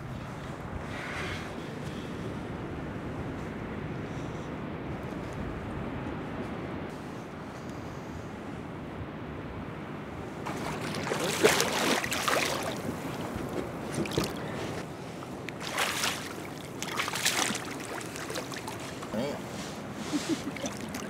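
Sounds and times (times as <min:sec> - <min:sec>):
fish thrashing and splashing: 0:10.5 - 0:14.5, 0:15.5 - 0:19.2, 0:20.2 - 0:21.0.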